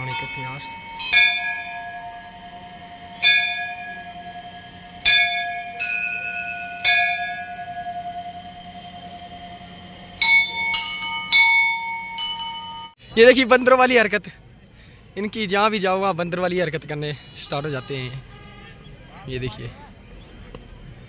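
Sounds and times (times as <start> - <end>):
temple bells ringing: 0.0 - 13.0.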